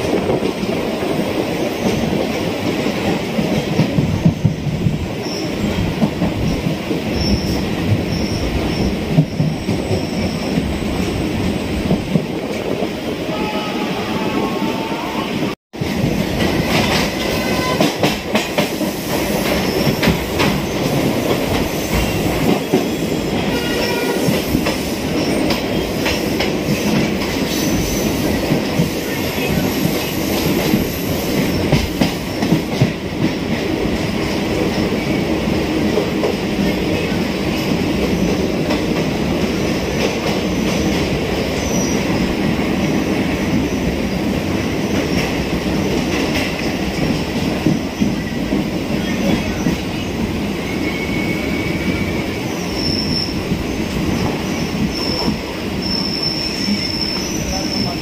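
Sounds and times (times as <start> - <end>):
train rumbling: 0.0 - 58.0
wheel squeal: 7.1 - 8.9, 50.6 - 53.4, 54.9 - 57.8.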